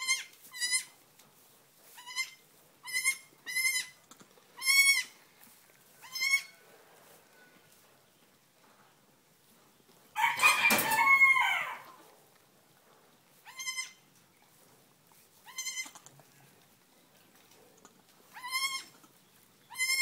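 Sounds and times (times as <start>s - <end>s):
goat kid bleating: 0.0s - 1.0s, 1.9s - 5.2s, 6.0s - 6.6s, 13.4s - 14.2s, 15.4s - 16.2s, 18.3s - 20.0s.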